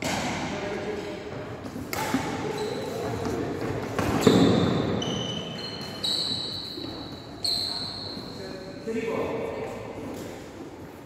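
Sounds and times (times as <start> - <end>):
racket hitting shuttlecock: 0.0 - 0.6, 1.7 - 2.6
shoes squeaking on floor: 1.5 - 8.9
footfalls on wooden court: 2.9 - 5.0.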